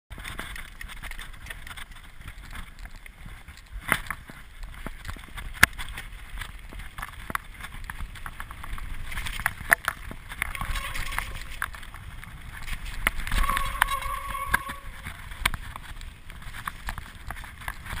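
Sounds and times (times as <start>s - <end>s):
bike rattling and clicking: 0.1s - 10.6s.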